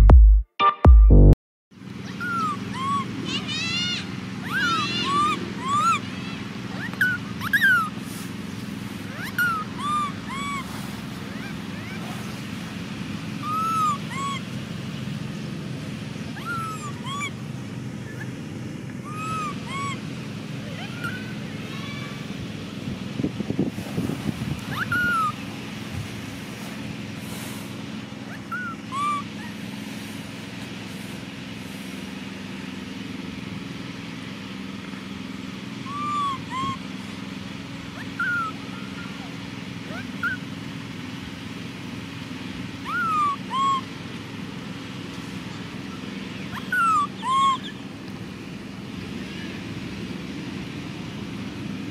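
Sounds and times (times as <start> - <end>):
baby monkey coo calls: 2.0 - 8.0, 9.0 - 12.5, 13.4 - 14.6, 16.3 - 17.4, 19.0 - 22.2, 24.6 - 25.5, 28.2 - 29.7, 35.8 - 37.0, 37.9 - 40.5, 42.8 - 44.0, 45.9 - 47.9.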